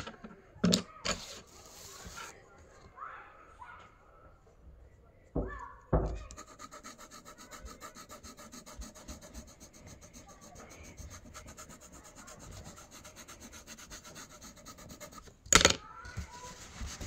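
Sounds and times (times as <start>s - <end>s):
pencil scratching on paper: 1.1s - 2.3s, 6.2s - 15.4s, 16.2s - 17.0s.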